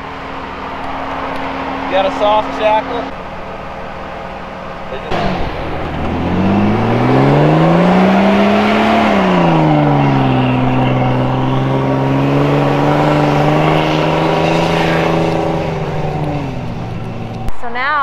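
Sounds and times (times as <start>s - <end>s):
engine revving under load: 0.0s - 17.5s.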